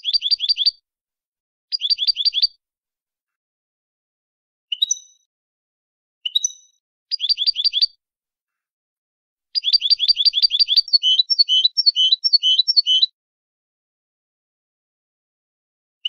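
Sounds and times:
goldfinch singing: 0:09.6 - 0:13.1.

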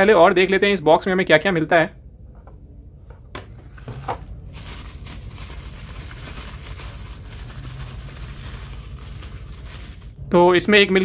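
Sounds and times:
box packaging rustling: 0:03.5 - 0:10.2.

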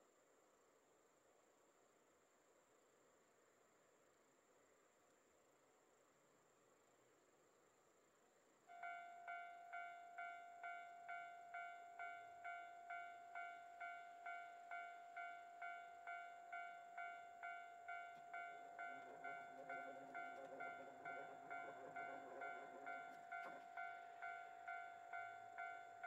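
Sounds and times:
level crossing warning bell: 0:08.7 - 0:26.0.

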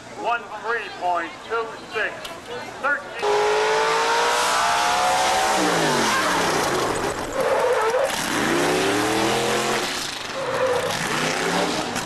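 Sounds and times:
engine revving hard: 0:03.2 - 0:07.0, 0:07.8 - 0:12.0.

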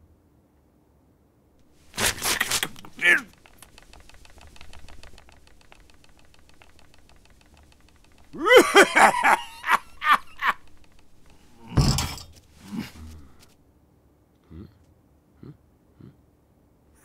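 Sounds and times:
paper rustling: 0:01.6 - 0:13.6
old man laughing heartily: 0:08.3 - 0:10.8.

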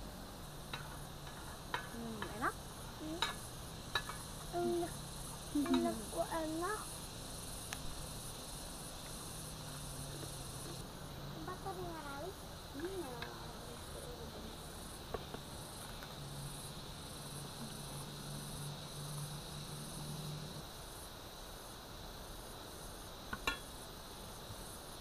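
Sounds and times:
insects chirping: 0:00.0 - 0:25.0.

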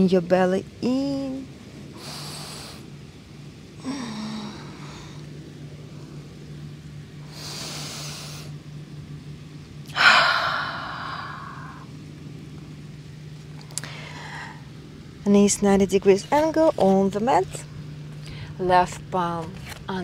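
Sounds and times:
faint low hum: 0:00.0 - 0:20.0
woman breathing deeply: 0:01.9 - 0:02.9, 0:03.8 - 0:05.4, 0:07.2 - 0:08.6, 0:09.9 - 0:11.9, 0:13.8 - 0:14.7.

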